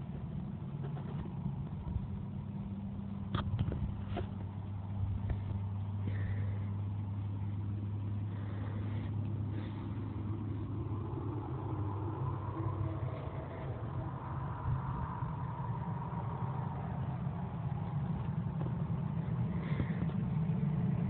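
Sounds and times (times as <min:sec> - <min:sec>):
engine humming: 0:00.0 - 0:21.0
high whine: 0:00.0 - 0:21.0.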